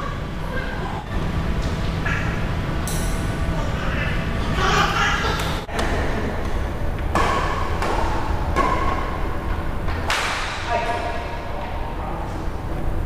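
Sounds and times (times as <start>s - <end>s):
rackets hitting shuttlecock: 5.4s - 10.7s.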